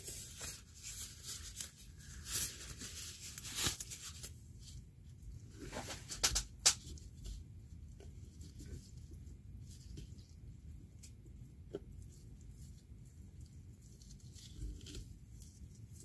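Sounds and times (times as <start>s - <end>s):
gloved hands rustling: 0.0s - 4.8s.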